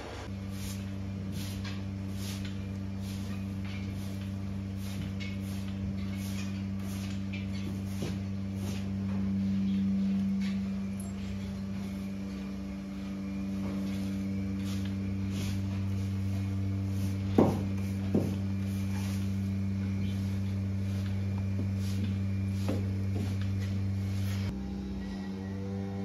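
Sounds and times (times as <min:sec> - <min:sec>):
broom sweeping concrete floor: 0:00.0 - 0:24.6
low machine hum: 0:00.0 - 0:26.0
sharp knocks: 0:17.4 - 0:18.4.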